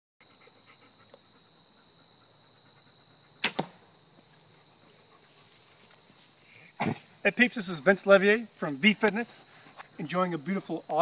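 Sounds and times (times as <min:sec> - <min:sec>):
insects droning: 0:00.2 - 0:11.0
bow string snapping: 0:03.4 - 0:03.8.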